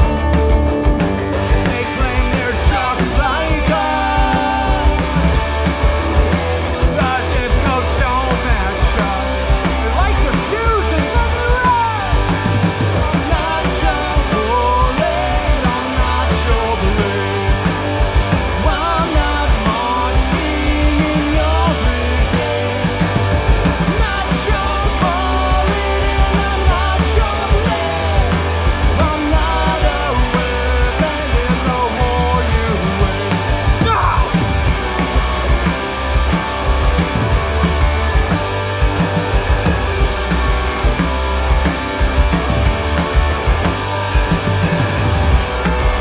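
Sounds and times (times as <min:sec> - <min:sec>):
bass guitar: 0:00.0 - 0:46.0
distorted electric guitars: 0:00.0 - 0:46.0
drum kit: 0:00.0 - 0:46.0
person singing: 0:01.6 - 0:05.4, 0:13.2 - 0:17.7, 0:18.6 - 0:23.2, 0:23.9 - 0:34.4.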